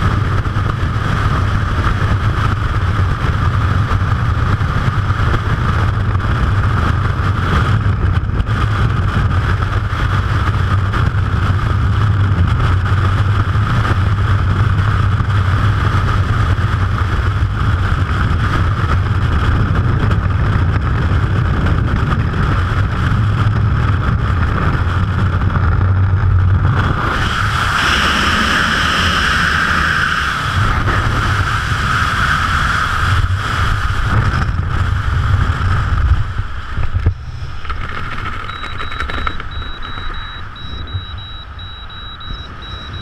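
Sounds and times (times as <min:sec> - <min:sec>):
freefall wind rushing: 0:00.0 - 0:38.4
high repeated beeping: 0:38.4 - 0:43.0.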